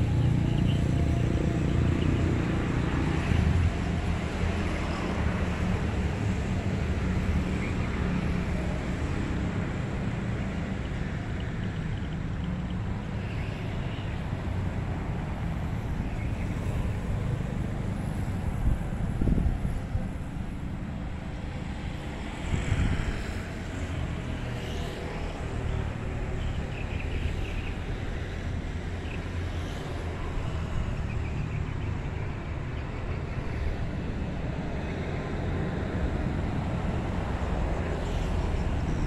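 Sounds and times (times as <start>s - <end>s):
distant road traffic: 0.0s - 39.0s
wind rumbling on microphone: 8.5s - 24.5s.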